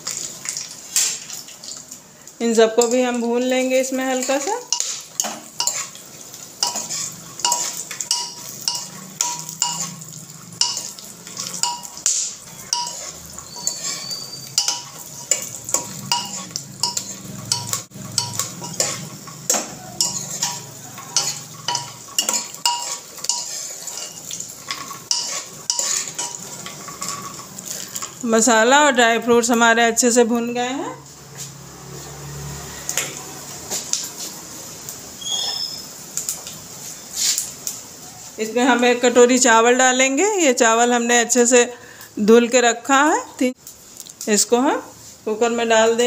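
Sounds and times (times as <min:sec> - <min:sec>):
light sizzle: 0:00.0 - 0:46.0
metal spoon scraping a pot: 0:04.1 - 0:06.0, 0:06.6 - 0:28.2.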